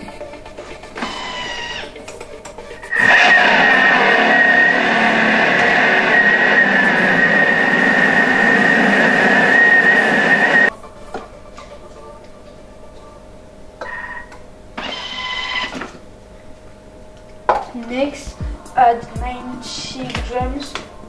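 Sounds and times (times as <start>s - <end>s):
kitchen machine motor whining: 1.0s - 1.9s, 2.8s - 10.7s, 14.8s - 16.0s.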